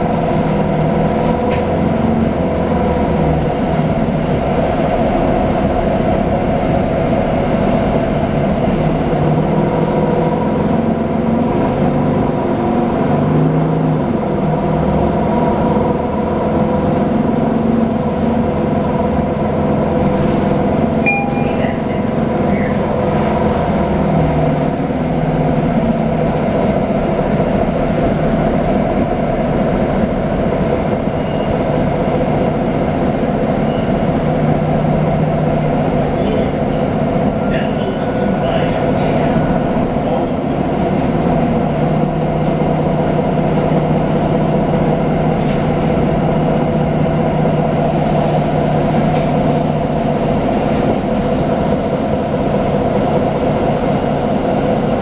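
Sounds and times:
bus engine drone: 0.0 - 55.0
brief high tone: 21.0 - 22.7.

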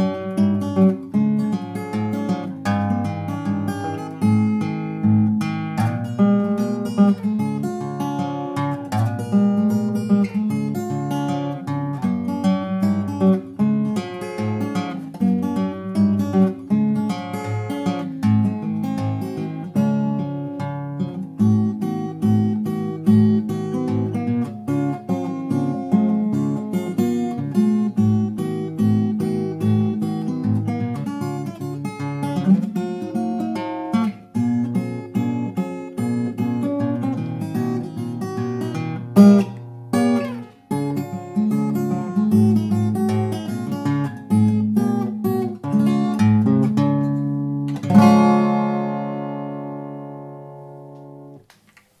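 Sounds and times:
fingerstyle acoustic guitar ragtime: 0.0 - 52.0.

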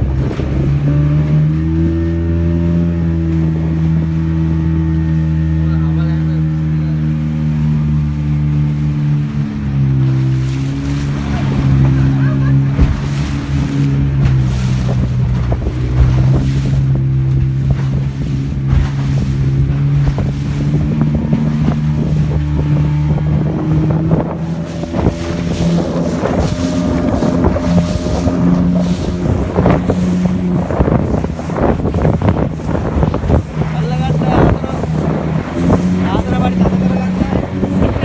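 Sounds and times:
wind on microphone: 0.0 - 5.5, 7.4 - 38.0
boat motor running: 0.0 - 38.0
water rushing along hull: 0.0 - 38.0
water slapping against hull: 0.0 - 38.0.

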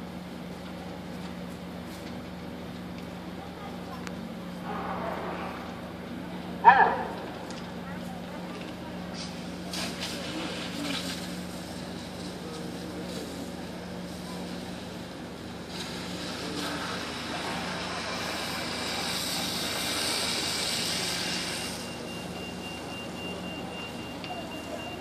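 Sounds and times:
fire engine running: 0.0 - 25.0
loud hiss: 14.0 - 22.4.

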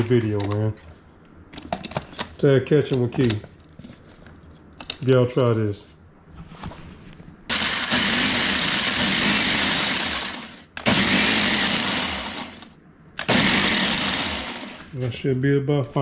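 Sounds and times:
blender grinding chips: 7.5 - 15.0.

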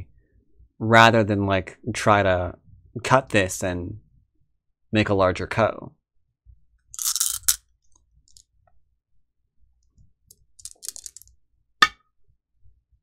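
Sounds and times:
game stones clattering: 7.0 - 7.6, 10.6 - 11.3.

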